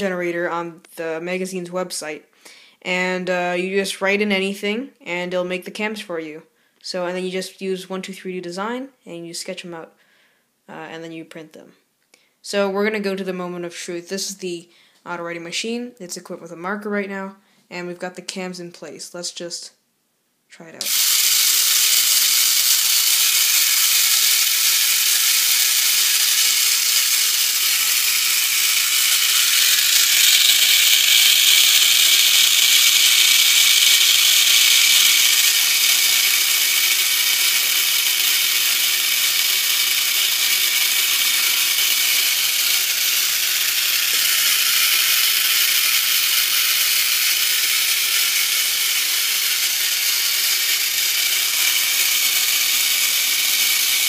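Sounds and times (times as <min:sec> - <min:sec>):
writing machine gears whirring: 0:20.8 - 0:54.0.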